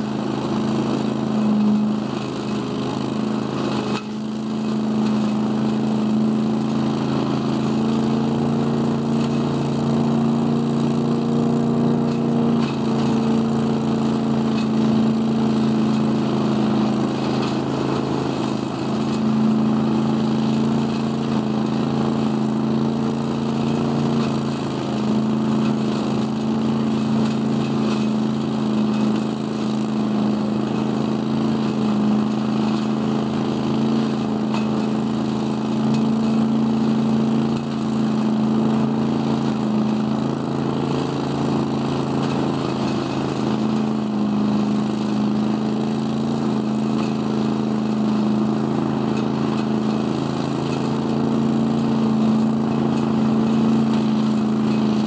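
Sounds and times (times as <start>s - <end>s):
engine drone: 1.1s - 6.5s
air and leaves rushing through hose: 8.4s - 55.0s.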